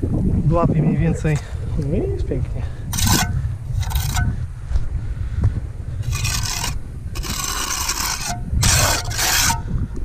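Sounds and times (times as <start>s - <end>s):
trowel scraping wet mortar: 2.9s - 4.3s, 6.0s - 9.6s.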